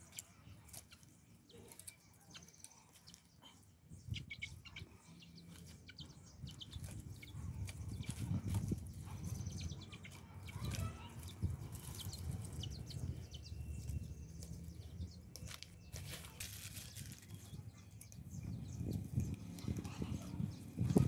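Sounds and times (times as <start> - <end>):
dry twigs rustling and snapping: 0.1 - 3.3, 10.0 - 12.6, 13.7 - 18.2.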